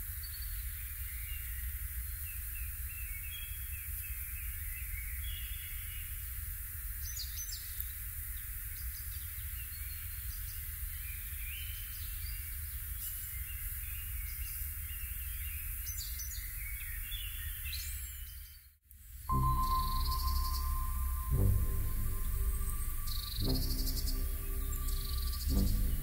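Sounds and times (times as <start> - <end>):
small birds chirping and singing: 8.9 - 26.0
forest hiss and low rumble: 19.3 - 26.0.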